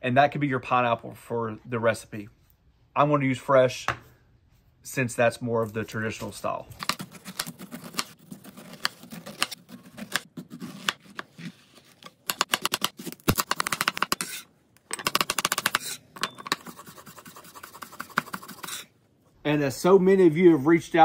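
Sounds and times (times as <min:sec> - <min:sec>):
knife cutting on cutting board: 0:06.8 - 0:12.0, 0:14.0 - 0:14.5, 0:16.6 - 0:18.9.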